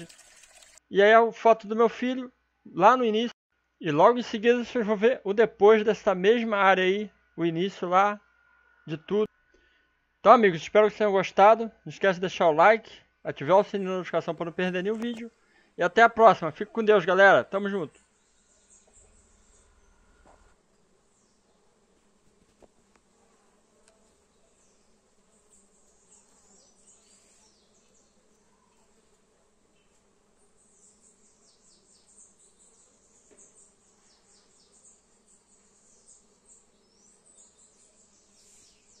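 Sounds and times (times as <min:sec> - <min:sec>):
bees buzzing: 0:18.0 - 0:39.0.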